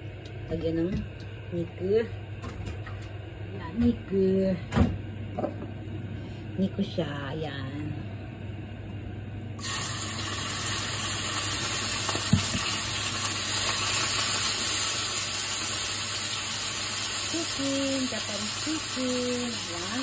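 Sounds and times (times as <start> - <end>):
beef sizzling in hot oil: 9.6 - 20.0.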